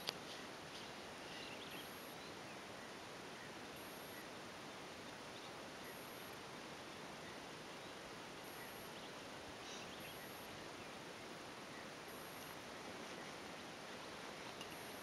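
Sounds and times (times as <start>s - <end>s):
faint ticks: 0.0s - 0.9s, 14.4s - 15.0s
outdoor background hiss: 0.0s - 15.0s.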